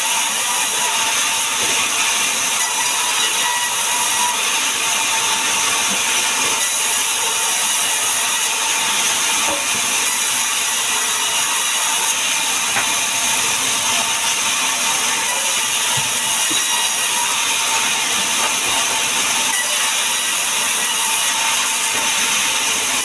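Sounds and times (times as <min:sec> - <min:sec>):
band saw cutting logs: 0:00.0 - 0:23.0.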